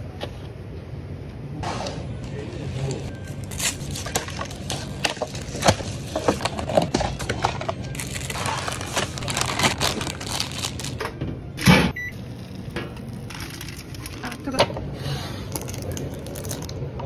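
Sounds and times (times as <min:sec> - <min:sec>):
paper lid crinkling and scraping: 0:03.7 - 0:11.0.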